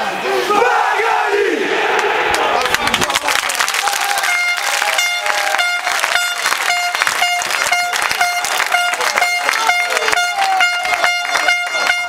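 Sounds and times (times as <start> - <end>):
crowd clapping in time: 2.0 - 12.0
horn short blasts: 4.2 - 12.0.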